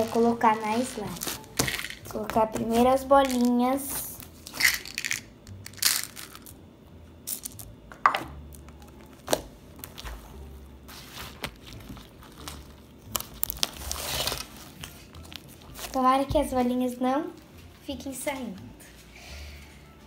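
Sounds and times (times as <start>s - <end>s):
slime crackling: 0.0s - 6.4s, 11.0s - 16.0s
plastic beads clicking: 4.5s - 6.5s.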